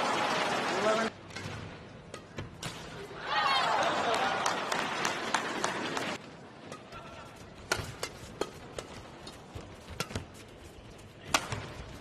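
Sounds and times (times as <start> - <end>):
racket hitting shuttlecock: 7.6 - 10.4, 11.2 - 11.9.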